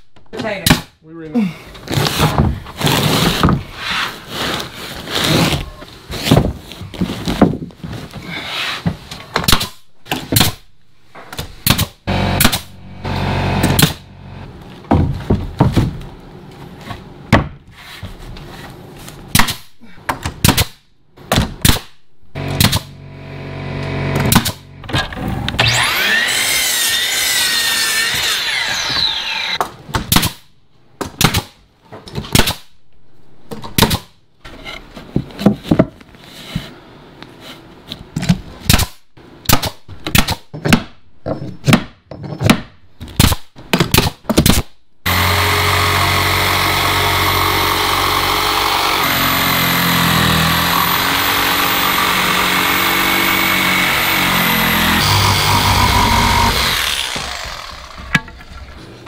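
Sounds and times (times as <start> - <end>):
nail gun firing: 11.6 - 12.7, 13.6 - 14.0, 20.4 - 23.0, 24.2 - 25.8.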